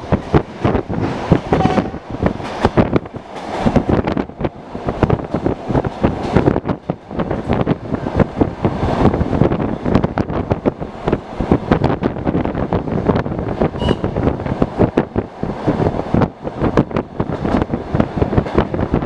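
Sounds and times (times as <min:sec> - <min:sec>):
wind on microphone: 0:00.0 - 0:19.0
short high tone: 0:01.6 - 0:02.0.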